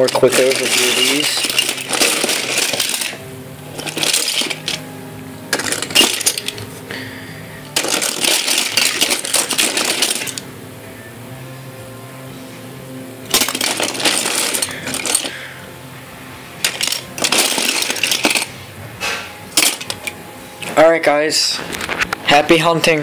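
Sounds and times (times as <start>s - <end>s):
toy cars clinking together: 0.0s - 4.8s, 5.5s - 6.6s, 7.6s - 10.4s, 13.3s - 15.4s, 16.6s - 18.5s, 19.5s - 20.2s.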